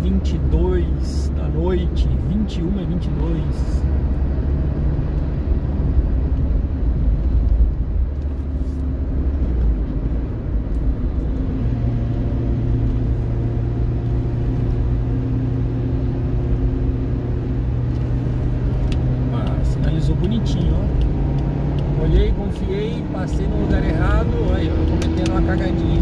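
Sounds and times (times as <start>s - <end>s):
car engine and tyre rumble: 0.0s - 26.0s
low engine hum: 0.0s - 26.0s.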